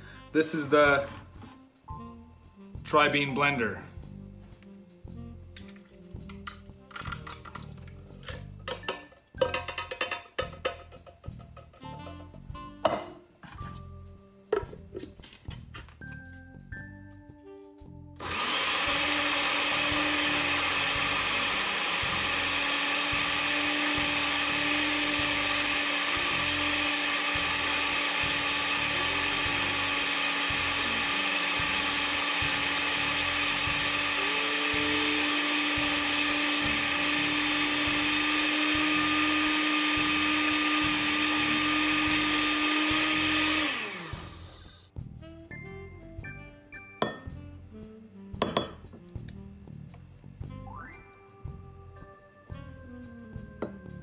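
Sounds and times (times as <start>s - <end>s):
blender motor whining: 18.2s - 44.9s.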